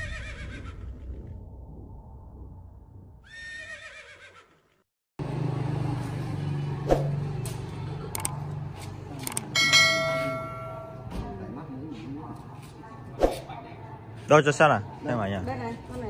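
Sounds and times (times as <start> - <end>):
horse whinnying: 0.0 - 1.1, 3.2 - 4.8
vehicle engine humming: 5.2 - 11.1
sharp clicks: 8.1 - 8.4.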